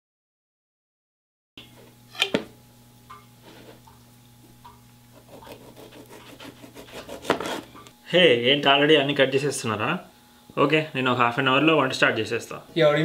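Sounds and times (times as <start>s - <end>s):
knife slicing tomato on board: 5.1s - 7.8s.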